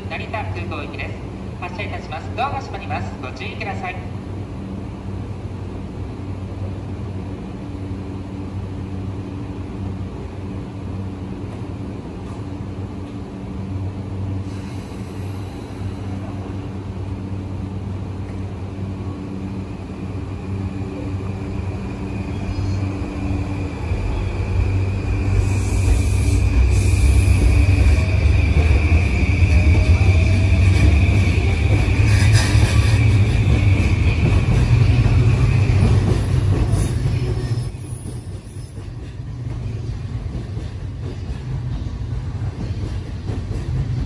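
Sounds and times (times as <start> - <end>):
train low hum: 0.0 - 44.0
train wheels rumbling: 9.8 - 44.0.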